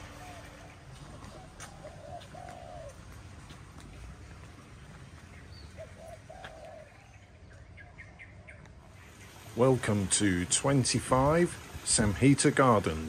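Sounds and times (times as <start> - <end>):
dove cooing: 0.0 - 3.7, 5.5 - 8.6
birds chirping: 0.0 - 13.0.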